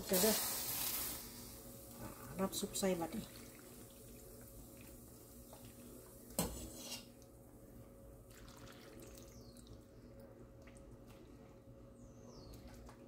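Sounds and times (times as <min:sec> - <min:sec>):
broth trickling and splashing: 0:02.4 - 0:06.1, 0:08.3 - 0:11.7.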